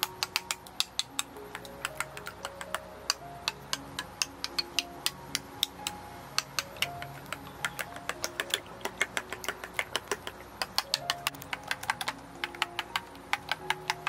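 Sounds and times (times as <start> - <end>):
soft background music: 0.0 - 14.0.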